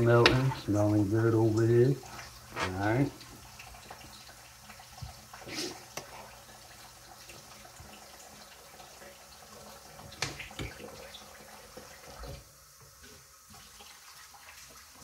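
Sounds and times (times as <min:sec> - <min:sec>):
tap running into sink: 0:00.0 - 0:00.8, 0:09.9 - 0:11.1.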